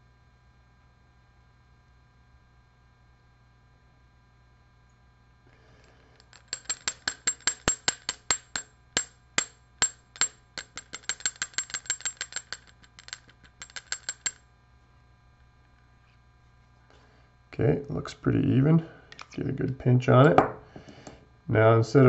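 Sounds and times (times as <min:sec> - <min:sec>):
metal hair stacker tapping: 0:06.3 - 0:14.4.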